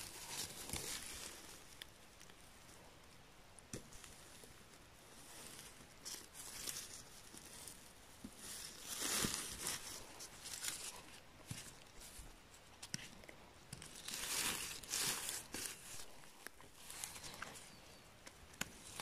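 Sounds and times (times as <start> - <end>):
hands rustling dry moss: 0.0 - 2.9, 3.6 - 19.0.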